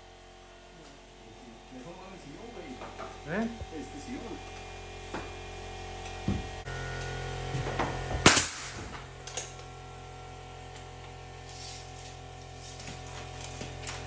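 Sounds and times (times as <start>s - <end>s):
steady low hum: 0.0s - 14.0s
loud sharp bang: 8.2s - 9.0s.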